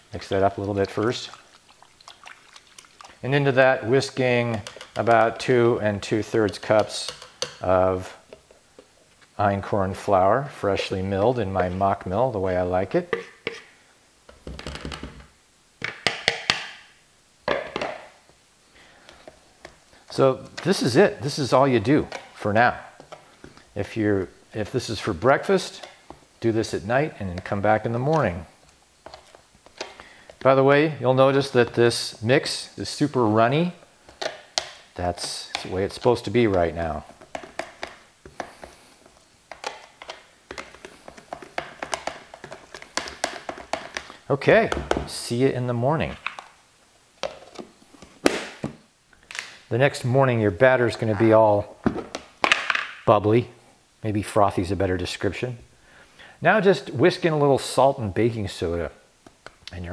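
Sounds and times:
whisk clicking against plastic bowl: 4.1s - 5.4s, 6.4s - 7.6s, 39.5s - 44.1s.

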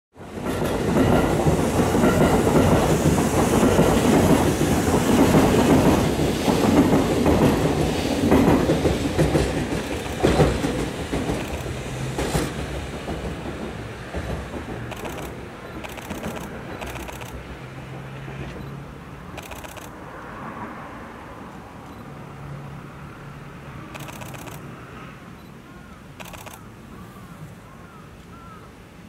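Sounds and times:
clickety-clack of rail joints: 0.2s - 20.0s, 23.9s - 24.7s
train wheels rumbling on rail: 0.2s - 24.8s, 26.1s - 27.5s
sharp clacks: 8.3s - 17.4s, 18.5s - 20.0s, 23.9s - 24.7s, 26.2s - 26.6s.

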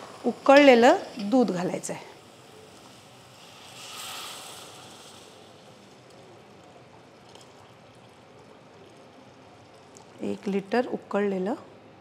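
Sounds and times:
milk pouring into a pot: 2.0s - 10.6s.

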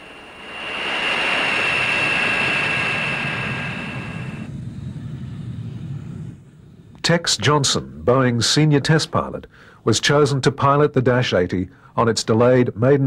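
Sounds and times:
jet engine whine: 0.0s - 7.0s
low rumble: 0.0s - 7.0s.

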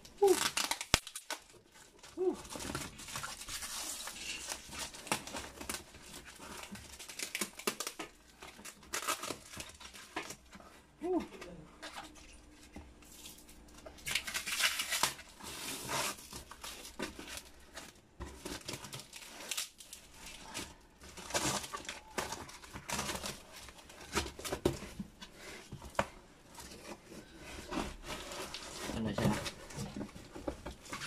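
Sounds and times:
cardboard and tape being torn: 0.0s - 10.4s, 13.0s - 25.0s.

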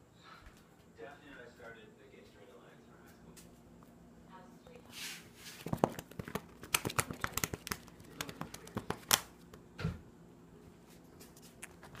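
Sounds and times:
paper pages riffled: 5.5s - 9.2s.

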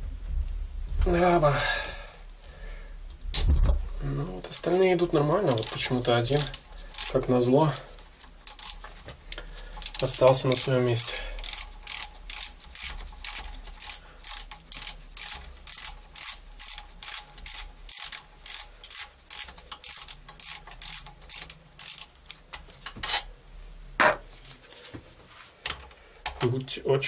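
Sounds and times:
ratchet wrench clicking: 5.4s - 8.9s, 9.7s - 23.3s.

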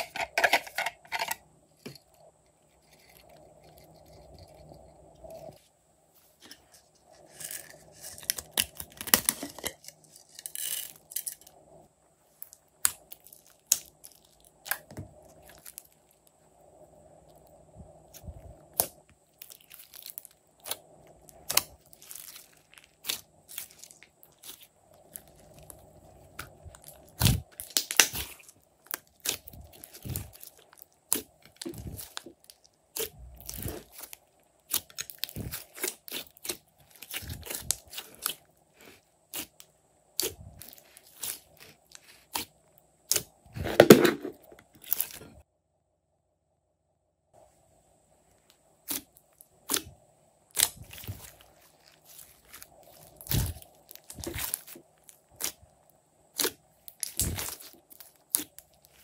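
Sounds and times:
slime crackling and popping: 12.4s - 16.3s, 18.1s - 38.5s, 50.5s - 59.0s.

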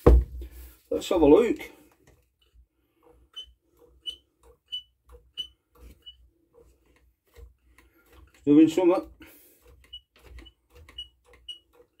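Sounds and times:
primer bulb click and squeak: 3.3s - 6.2s, 9.9s - 12.0s.

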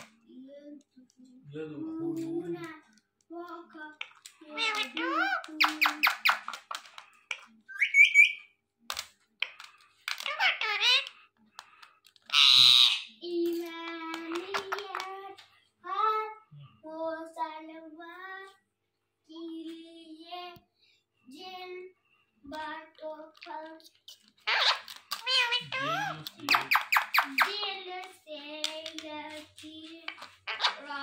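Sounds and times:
parakeets chirping and chattering: 4.0s - 8.5s, 9.4s - 11.7s, 12.3s - 13.2s, 14.2s - 15.2s, 24.0s - 28.1s, 30.1s - 31.0s
parakeet harsh squawk: 4.6s - 6.6s, 7.7s - 8.5s, 10.2s - 11.2s, 12.3s - 13.2s, 24.4s - 27.6s, 30.5s - 30.9s
parakeet talking mimicry calls: 4.6s - 6.6s, 7.7s - 8.5s, 10.2s - 11.2s, 12.3s - 13.2s, 24.5s - 27.6s, 30.5s - 30.9s.

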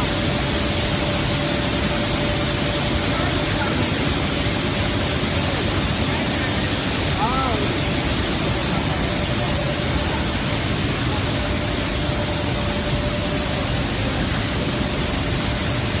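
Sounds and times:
flour mill machinery running: 0.0s - 16.0s.

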